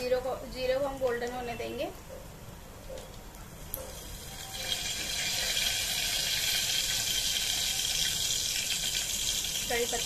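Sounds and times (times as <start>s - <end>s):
seeds sizzling in hot oil: 3.9s - 10.0s.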